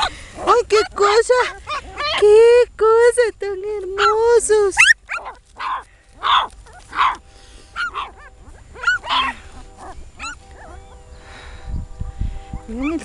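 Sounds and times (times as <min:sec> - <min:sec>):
puppies whimpering: 0:00.0 - 0:02.4, 0:04.0 - 0:11.2.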